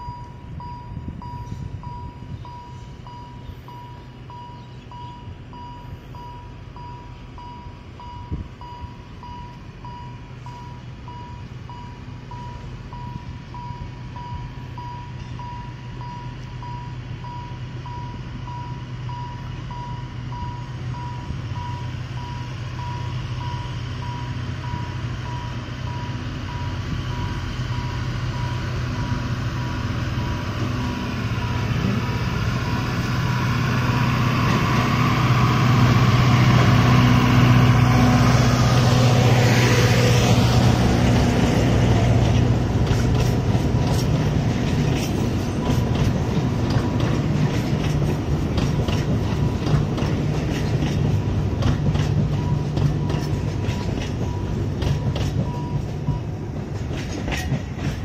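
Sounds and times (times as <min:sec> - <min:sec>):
diesel locomotive engine hum: 0:00.0 - 0:58.0
train wheels clicking over rail joints: 0:40.0 - 0:58.0.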